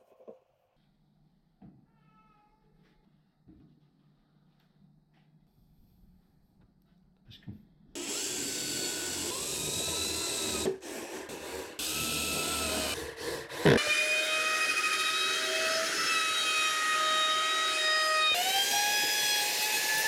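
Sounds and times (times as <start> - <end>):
power drill driving screws: 8.0 - 13.0
router whining: 8.0 - 20.0.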